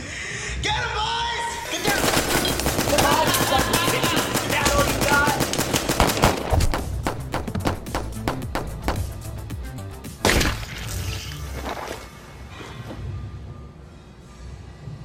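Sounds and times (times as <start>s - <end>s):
automatic gunfire: 1.6s - 9.2s.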